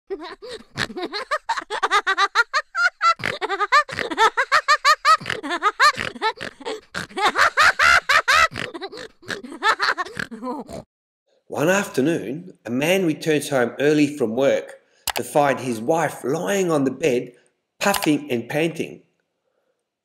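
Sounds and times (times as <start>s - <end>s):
hearty laughter: 0.1s - 10.8s.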